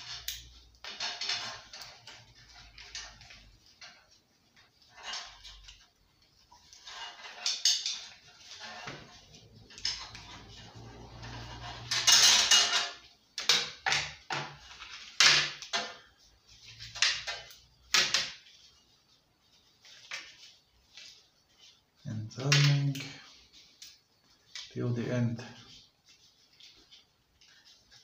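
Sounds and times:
metal tools clanking on workbench: 11.8 - 13.0.

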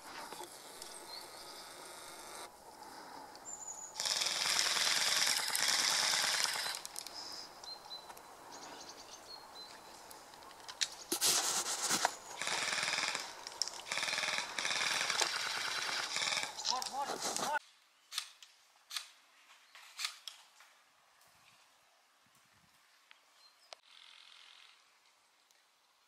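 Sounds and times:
airsoft rifle firing bursts: 4.0 - 6.8, 12.4 - 16.6.

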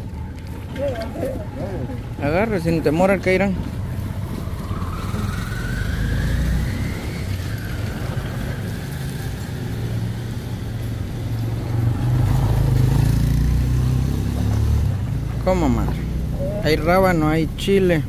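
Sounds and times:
engine rising and falling in pitch: 3.2 - 17.4
low engine rumble: 14.5 - 18.0.

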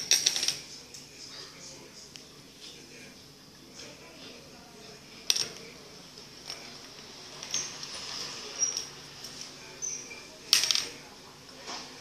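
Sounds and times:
faint high squeaks: 9.7 - 10.4.

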